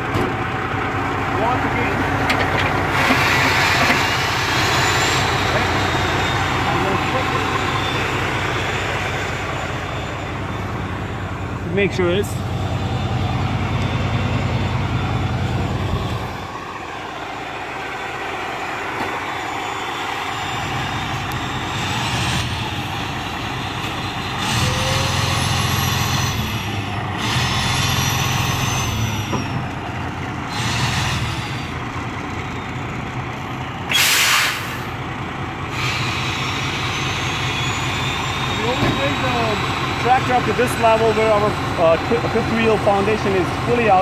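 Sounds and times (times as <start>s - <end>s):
diesel engine revving: 0.0s - 44.0s
air brake hiss: 3.0s - 5.2s, 33.9s - 35.0s, 35.7s - 37.2s.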